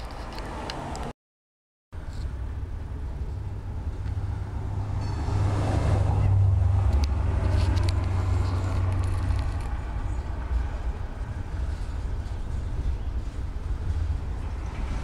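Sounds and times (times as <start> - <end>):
freight train rumbling past: 3.0 - 15.0.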